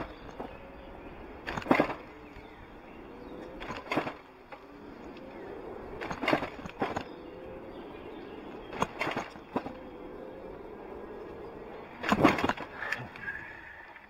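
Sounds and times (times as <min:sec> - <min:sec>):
bicycle rolling on pavement: 0:00.0 - 0:13.9
faint electric motor whine: 0:00.0 - 0:14.0
short clattering rattles: 0:01.4 - 0:02.4, 0:06.0 - 0:07.2, 0:08.7 - 0:09.8, 0:12.0 - 0:13.2.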